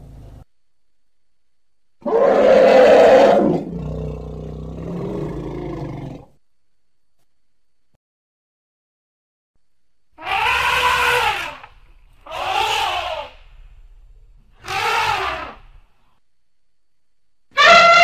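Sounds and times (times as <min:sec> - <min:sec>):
elephant screaming calls: 0:02.0 - 0:03.8, 0:10.2 - 0:13.7, 0:14.6 - 0:15.8, 0:17.5 - 0:18.0.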